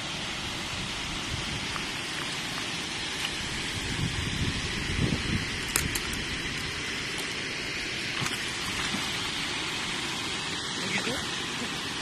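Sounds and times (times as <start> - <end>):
fish splashing at the surface: 8.0 - 10.2.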